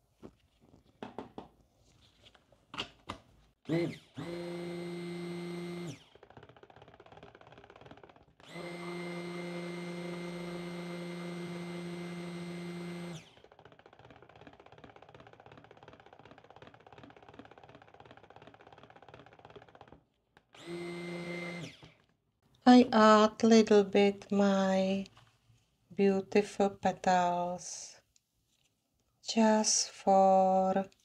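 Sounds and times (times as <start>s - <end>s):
stick blender motor whirring: 3.6s - 22.1s.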